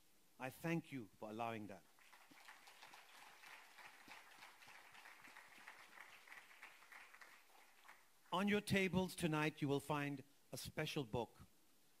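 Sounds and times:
faint audience applause: 0:01.9 - 0:08.3.

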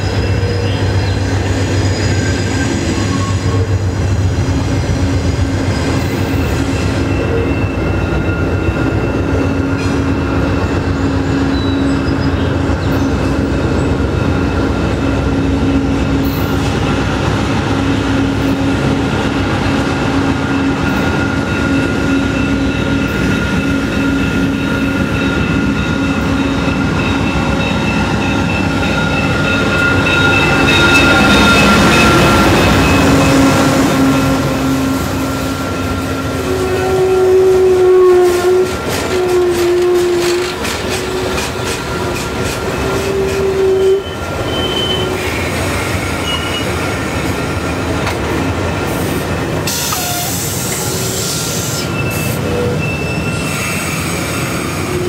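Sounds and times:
diesel locomotive engine rumbling: 0:00.0 - 0:55.0
wheels squealing on track: 0:36.4 - 0:46.8, 0:49.8 - 0:55.0.

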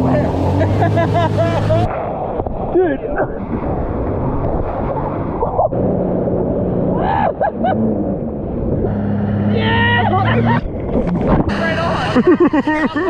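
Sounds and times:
jet ski engine humming: 0:00.0 - 0:13.0
water rushing and splashing: 0:00.0 - 0:13.0
person shouting: 0:09.5 - 0:10.6.

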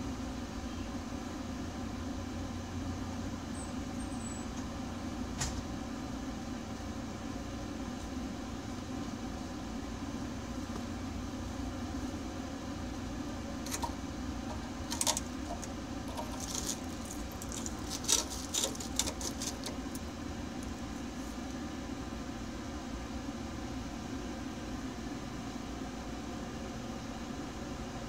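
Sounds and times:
low machine hum: 0:00.0 - 0:28.0
screwdriver clinking and scraping metal: 0:13.7 - 0:20.0.

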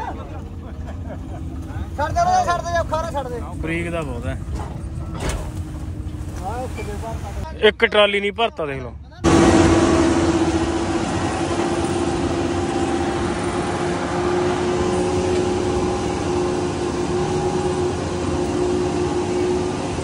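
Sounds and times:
forage harvester engine hum: 0:00.0 - 0:20.0.

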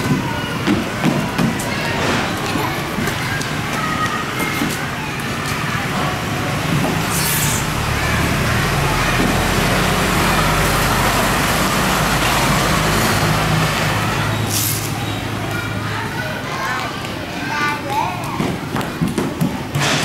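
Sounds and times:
traffic noise: 0:00.0 - 0:20.0.

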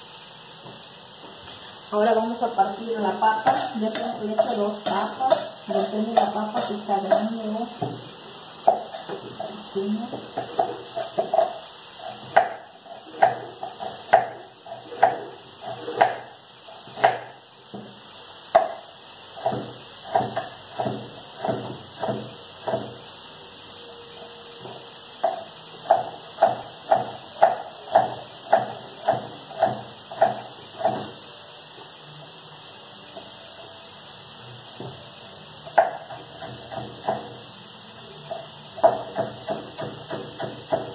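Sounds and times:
faint hiss: 0:00.0 - 0:36.2
knife chopping on wooden board: 0:03.4 - 0:08.0, 0:08.6 - 0:09.5, 0:10.1 - 0:11.5, 0:12.1 - 0:16.3, 0:16.9 - 0:17.9, 0:18.5 - 0:18.8, 0:19.4 - 0:23.0, 0:25.2 - 0:31.1, 0:35.8 - 0:37.4, 0:38.8 - 0:40.9.

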